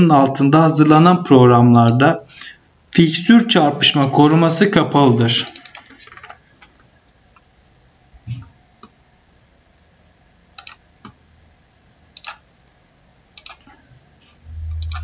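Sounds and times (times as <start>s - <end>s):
computer mouse clicking: 5.4s - 7.5s, 10.6s - 11.2s, 12.2s - 12.4s, 13.4s - 13.8s, 14.6s - 15.0s.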